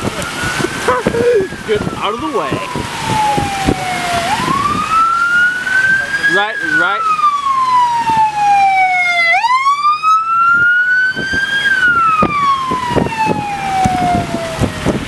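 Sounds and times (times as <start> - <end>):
wind buffeting microphone: 0.0 - 6.4, 7.0 - 15.0
emergency vehicle siren wailing: 0.0 - 15.0.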